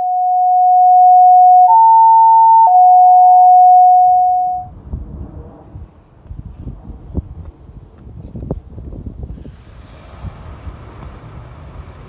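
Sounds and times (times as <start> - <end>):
electronic two-tone alert: 0.0 - 4.7
low rumble: 4.6 - 9.4
wind on microphone: 4.6 - 12.0.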